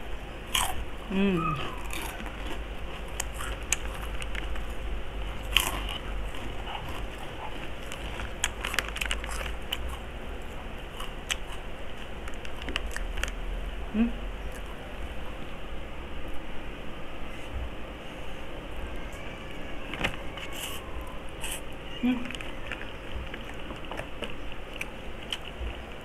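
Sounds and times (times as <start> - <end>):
crunchy pork rinds being chewed: 0.4 - 13.7, 19.9 - 26.0.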